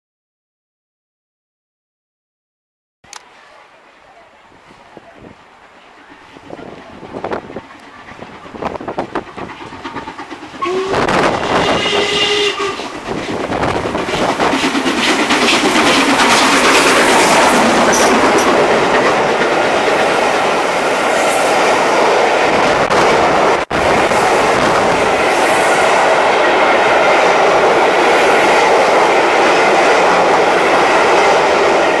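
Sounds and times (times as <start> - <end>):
train rushing past: 3.1 - 32.0
wheels clacking on rails: 4.8 - 32.0
steam locomotive whistle: 10.5 - 13.0.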